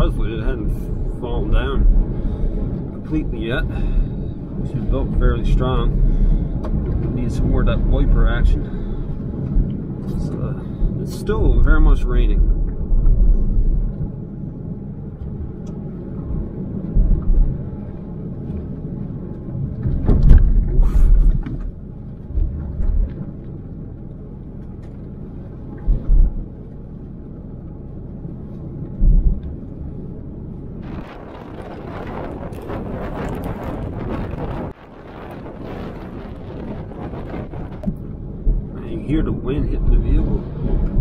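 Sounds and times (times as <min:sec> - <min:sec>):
short low thumps: 0:00.0 - 0:23.6, 0:25.7 - 0:27.2, 0:28.8 - 0:29.8, 0:30.8 - 0:41.0
engine and road rumble: 0:00.0 - 0:41.0
wind buffeting microphone: 0:00.0 - 0:41.0
windshield wipers sweeping: 0:30.8 - 0:38.7.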